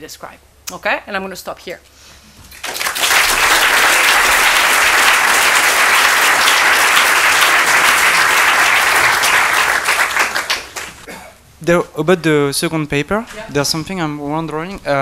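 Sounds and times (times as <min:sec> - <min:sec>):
audience applauding: 0:02.6 - 0:11.1.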